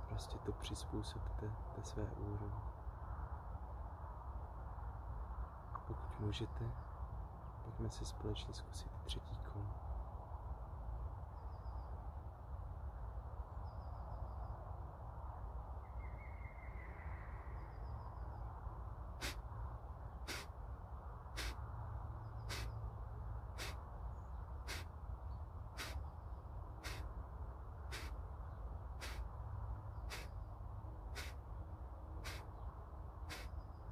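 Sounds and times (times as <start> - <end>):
low background noise: 0.0 - 33.9
forceful nasal exhalations: 19.2 - 19.4, 20.3 - 20.5, 21.4 - 21.6, 22.5 - 22.7, 23.6 - 23.8, 24.7 - 24.9, 25.8 - 26.0, 26.8 - 27.0, 27.9 - 28.2, 29.0 - 29.2, 30.1 - 30.3, 31.1 - 31.4, 32.2 - 32.5, 33.3 - 33.5.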